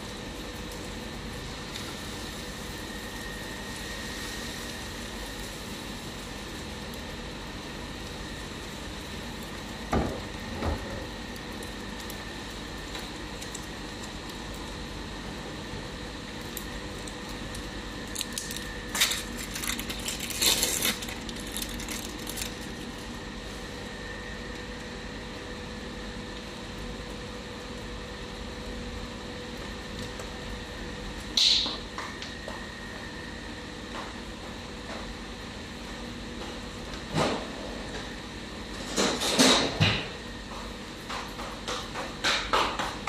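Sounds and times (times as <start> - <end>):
omelette hissing in a frying pan: 0.0 - 9.8.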